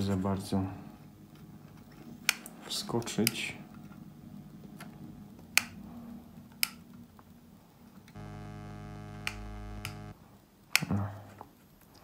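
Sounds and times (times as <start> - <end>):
capacitor leads clicking into circuit board: 8.1 - 10.2
steady electrical buzz: 8.2 - 10.2.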